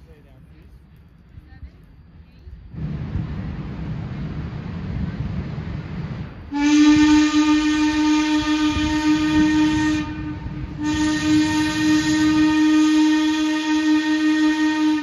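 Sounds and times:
steam whistle blasts: 0:06.5 - 0:15.0.

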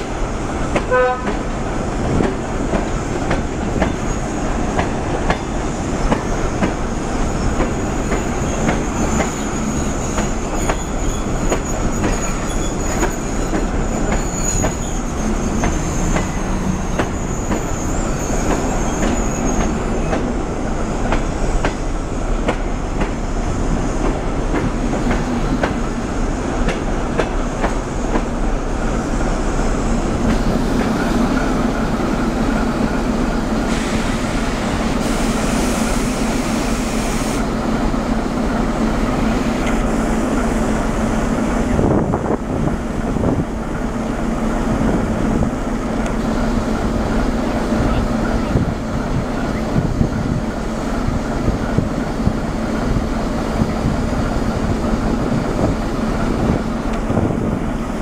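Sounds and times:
train coaches rolling past: 0:00.0 - 0:58.0
high wheel squeal: 0:07.2 - 0:20.2.

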